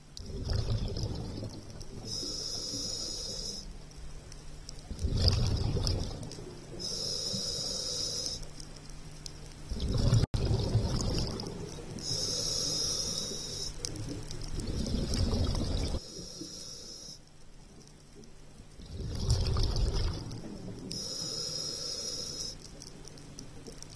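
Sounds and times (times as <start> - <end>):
exhaled bubbles rushing: 0.2 - 1.9, 4.9 - 6.4, 9.7 - 11.8, 14.5 - 16.0, 18.8 - 20.8
regulator hissing inhale: 2.0 - 3.8, 6.7 - 8.6, 12.0 - 14.0, 16.0 - 17.3, 20.9 - 22.8.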